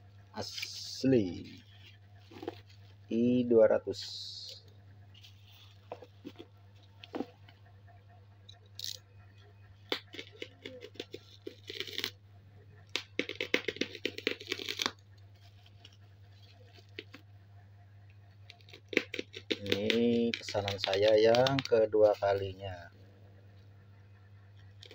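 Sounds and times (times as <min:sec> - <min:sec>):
low electrical hum: 0:00.0 - 0:24.9
bubble wrap crackling: 0:13.0 - 0:17.2.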